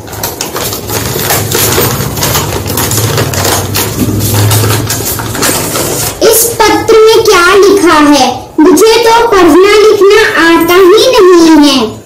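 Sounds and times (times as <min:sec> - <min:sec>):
paper crinkling and rustling: 0:00.0 - 0:06.2.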